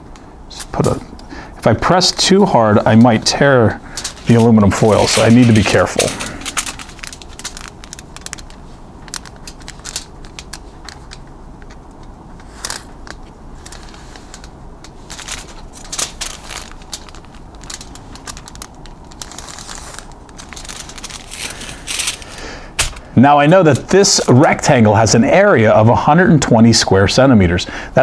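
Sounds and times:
aluminium foil crinkling: 2.8 - 24.7.

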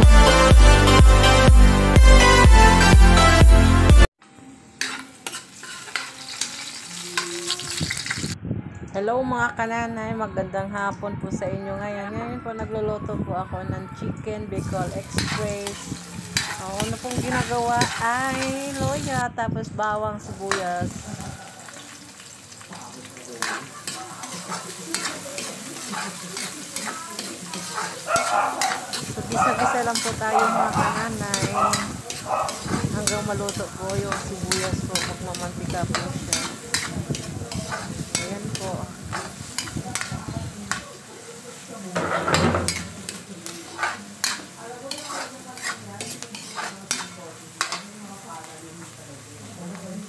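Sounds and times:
food sizzling in hot oil: 4.6 - 8.4, 14.5 - 19.2, 20.2 - 50.0
metal spatula scraping a wok: 4.7 - 8.4, 14.5 - 19.2, 20.4 - 40.8, 41.9 - 48.2.

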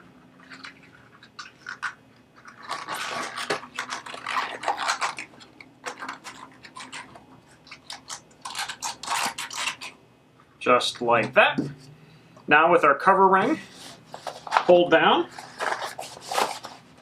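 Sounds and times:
rubber seal scraping and crinkling: 0.0 - 10.0, 13.7 - 17.0.

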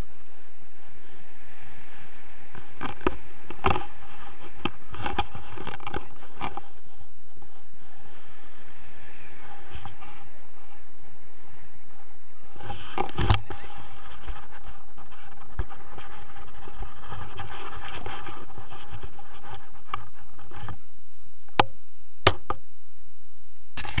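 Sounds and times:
wind buffeting microphone: 0.0 - 22.6.

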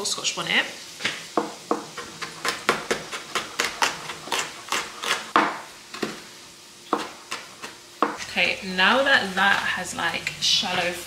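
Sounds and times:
knife chopping on plastic board: 1.0 - 6.2, 6.9 - 8.2.

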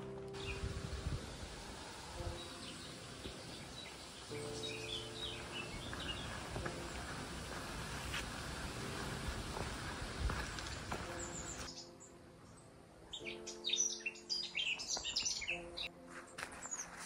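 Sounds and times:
steady rushing noise: 0.0 - 11.7
songbird chirps and trills: 0.0 - 17.0.

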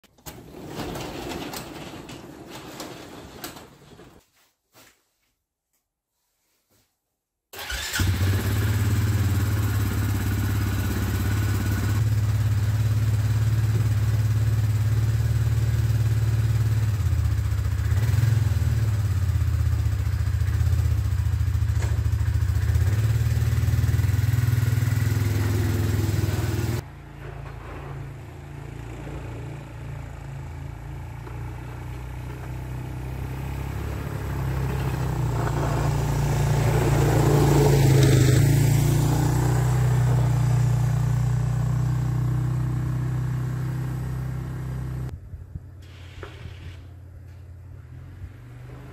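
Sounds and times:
atv engine starting and running: 7.6 - 45.1.

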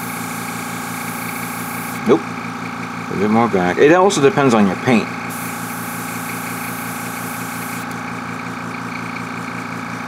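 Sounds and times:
airbrush hiss of compressed air: 0.0 - 2.0, 5.3 - 7.8
electric motor hum: 0.0 - 2.1, 5.0 - 10.0.

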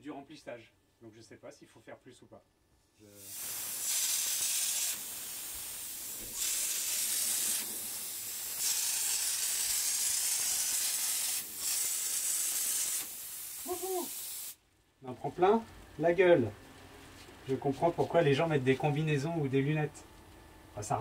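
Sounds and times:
spray gun air hiss: 3.1 - 14.6.

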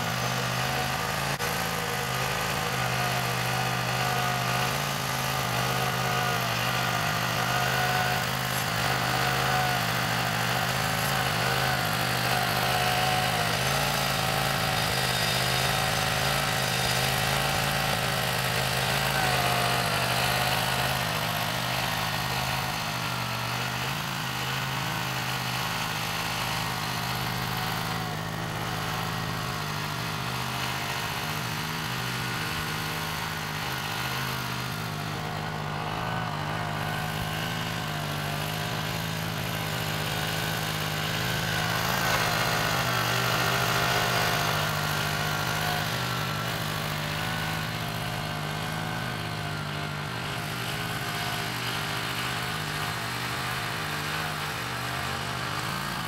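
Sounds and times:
small engine running: 0.0 - 56.0.

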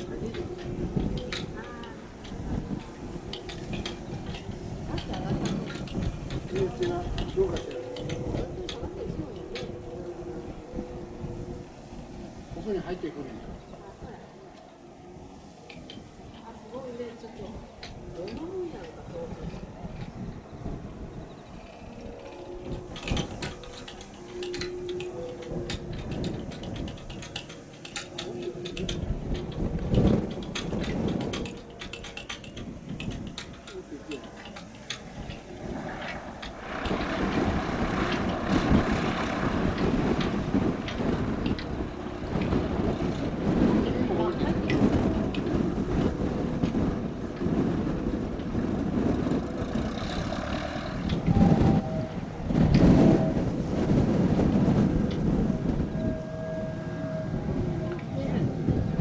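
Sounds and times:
sharp clicks and crackles: 0.0 - 10.2, 21.1 - 47.5
aircraft engine rumbling: 0.0 - 59.0.

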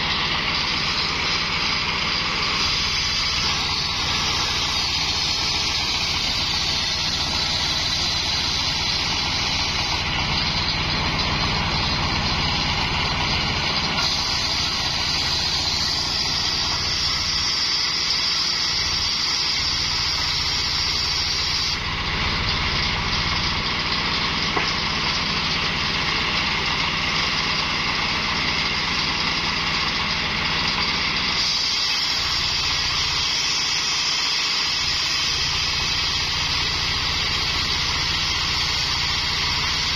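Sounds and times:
saw blade cutting hiss: 0.0 - 21.9, 30.6 - 39.9
engine droning: 0.0 - 39.9.

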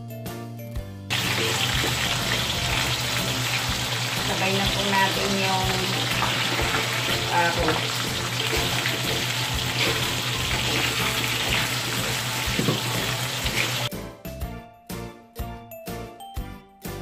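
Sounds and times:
vegetables frying in hot oil: 1.1 - 13.9
wooden spatula scraping wok: 8.2 - 13.9
tinkling music jingle: 13.9 - 17.0.

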